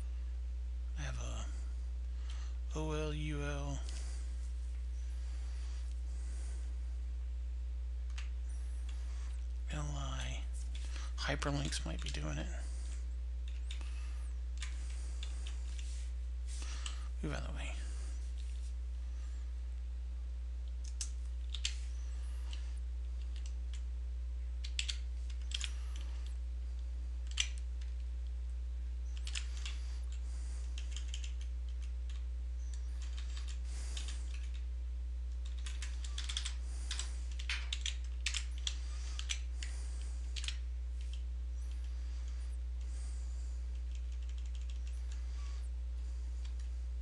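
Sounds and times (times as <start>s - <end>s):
steady low hum: 0.0s - 47.0s
computer keyboard typing: 24.6s - 25.7s, 29.2s - 29.8s, 30.7s - 34.6s, 35.4s - 39.7s, 43.8s - 45.0s.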